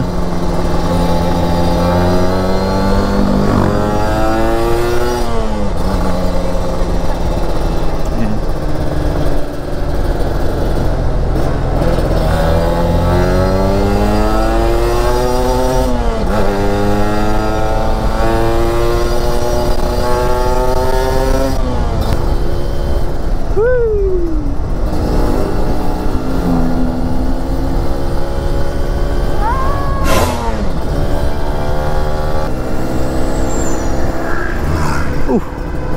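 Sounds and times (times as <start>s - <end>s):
motorcycle engine accelerating: 0.0s - 35.9s
low wind rumble: 15.4s - 35.9s.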